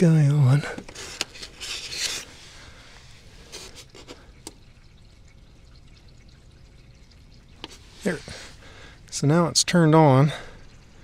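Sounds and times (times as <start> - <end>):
handling rustle: 0.7 - 4.2.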